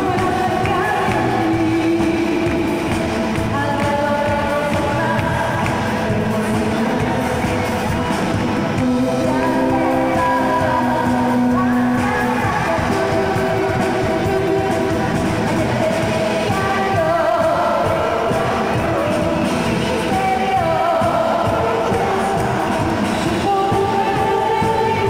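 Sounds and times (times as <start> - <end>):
drums: 0.0 - 25.0
electric guitar: 0.0 - 25.0
keyboards: 0.0 - 25.0
woman singing into microphone: 0.0 - 25.0.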